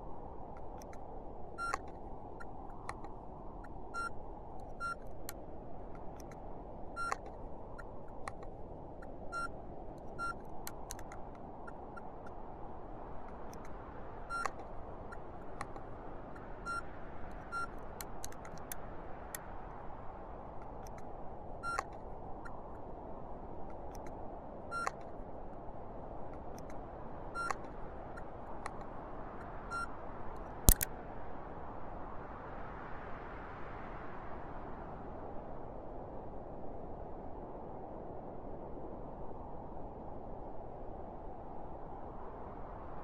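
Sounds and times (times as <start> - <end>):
sharp clicks: 0.6 - 1.0, 1.6 - 6.4, 7.0 - 8.5, 10.0 - 11.8, 13.3 - 16.5, 17.3 - 19.4, 24.8 - 25.1, 27.4 - 27.7, 30.6 - 30.9
short electronic beeps: 1.6 - 1.9, 4.0 - 4.2, 4.8 - 5.0, 7.0 - 7.2, 9.3 - 9.5, 10.2 - 10.4, 14.3 - 14.6, 17.5 - 17.7, 24.7 - 25.0.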